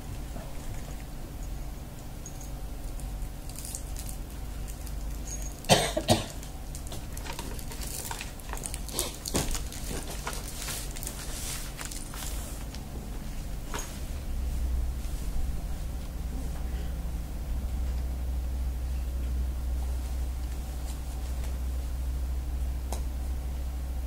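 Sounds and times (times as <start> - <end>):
person coughing: 5.7 - 6.4.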